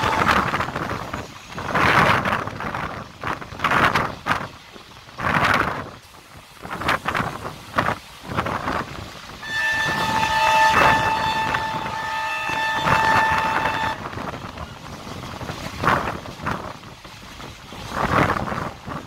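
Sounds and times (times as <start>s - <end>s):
train horn long blast: 0.0s - 0.6s, 9.4s - 14.3s
train running noise: 0.0s - 19.0s.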